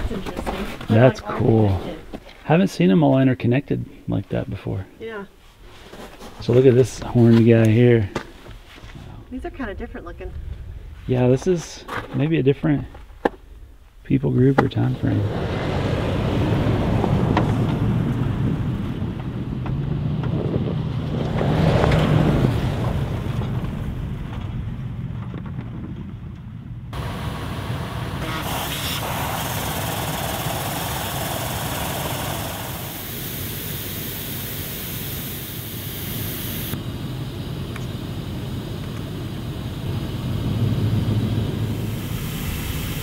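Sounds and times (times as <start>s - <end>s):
vehicle engine and tyres rumbling: 0.0s - 43.0s
road or wind noise hiss: 26.9s - 43.0s.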